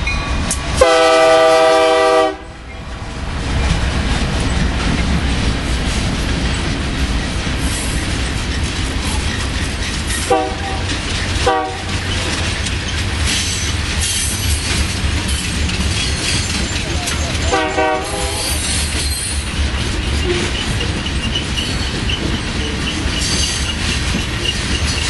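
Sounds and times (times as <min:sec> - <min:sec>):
train wheels clattering on rails: 0:00.0 - 0:25.0
train horn blasts: 0:00.8 - 0:02.6, 0:10.2 - 0:12.0, 0:17.4 - 0:18.8.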